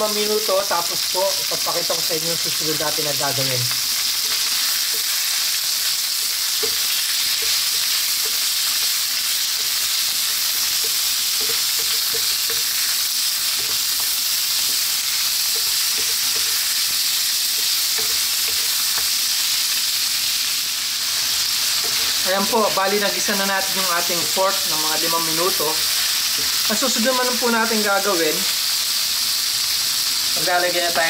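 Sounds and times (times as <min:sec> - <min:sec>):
meat sizzling in a wok: 0:00.0 - 0:31.0
wooden spatula knocking a pan: 0:06.2 - 0:09.0, 0:10.3 - 0:14.9, 0:15.5 - 0:16.8, 0:17.6 - 0:19.1.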